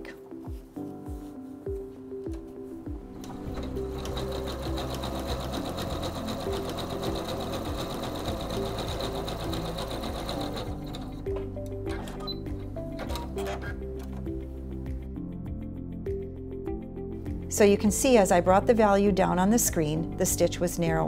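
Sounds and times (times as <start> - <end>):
sewing machine stitching: 3.2 - 11.2.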